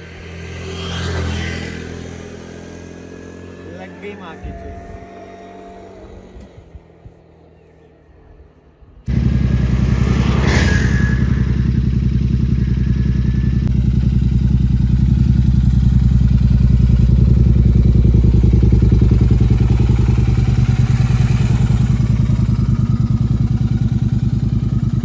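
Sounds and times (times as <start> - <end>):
motorcycle engine running: 8.4 - 25.0.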